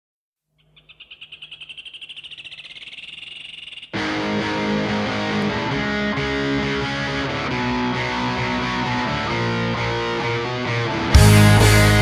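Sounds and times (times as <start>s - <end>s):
rock band with distorted guitar: 4.0s - 12.0s.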